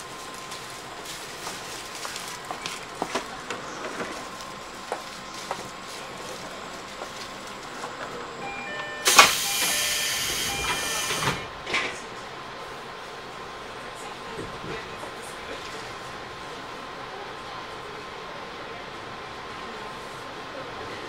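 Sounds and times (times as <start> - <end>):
train running noise: 0.0 - 21.0
compressed air hiss: 9.1 - 11.4.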